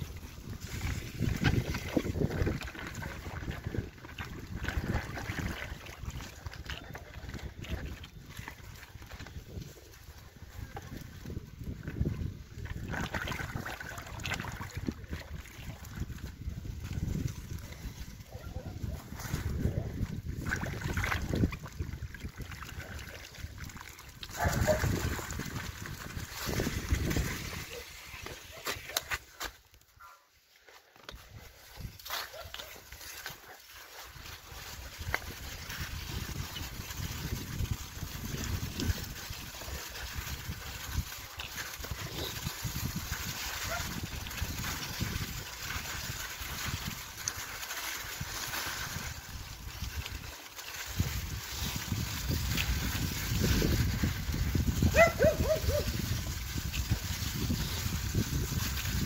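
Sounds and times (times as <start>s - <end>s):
bicycle tyres splashing through slush: 0.0s - 29.6s, 30.9s - 59.0s.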